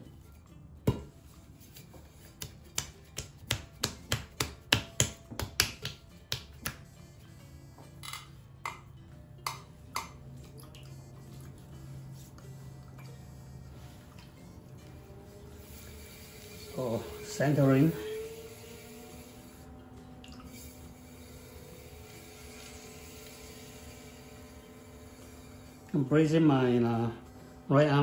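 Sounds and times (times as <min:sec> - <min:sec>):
hands slapping clay: 0:02.2 - 0:06.9.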